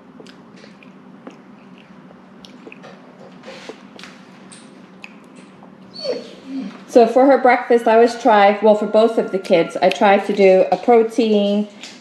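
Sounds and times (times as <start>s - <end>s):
baby chewing and mouth sounds: 0.0s - 5.9s.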